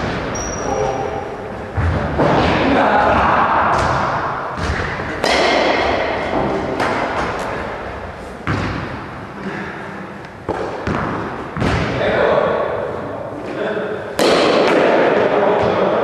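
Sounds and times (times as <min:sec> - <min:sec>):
echoing thuds and knocks: 0:01.7 - 0:07.5, 0:08.4 - 0:09.0, 0:10.5 - 0:12.0.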